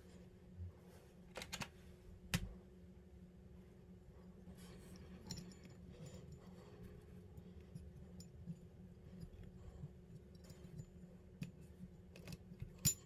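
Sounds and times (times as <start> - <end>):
low steady hum: 0.0 - 13.0
small metal parts clicking: 10.3 - 13.0.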